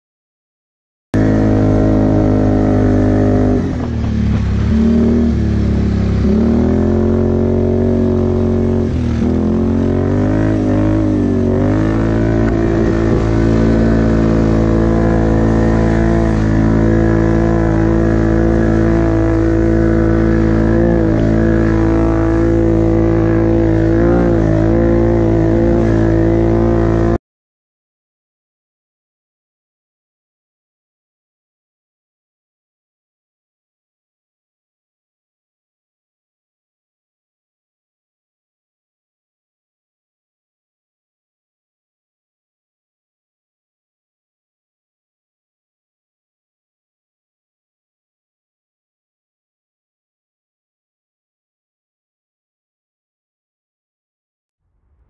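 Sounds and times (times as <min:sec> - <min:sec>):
atv engine revving: 0:01.2 - 0:27.2.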